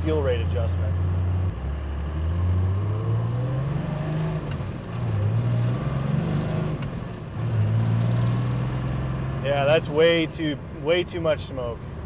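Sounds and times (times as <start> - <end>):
diesel truck engine accelerating: 0.0 - 12.0.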